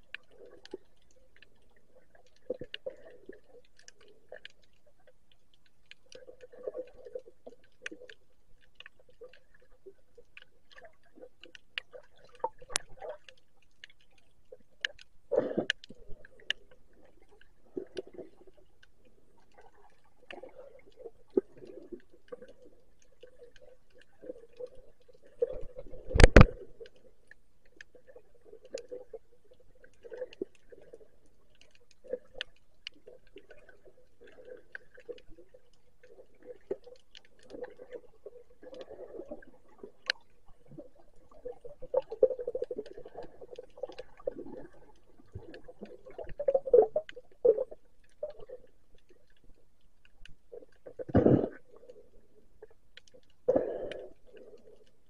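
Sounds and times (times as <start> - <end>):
underwater water movement: 0.0 - 55.0.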